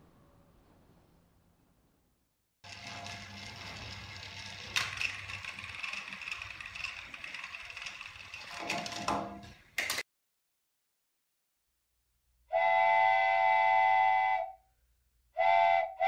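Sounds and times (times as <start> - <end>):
toy train motors whirring: 2.7 - 9.6.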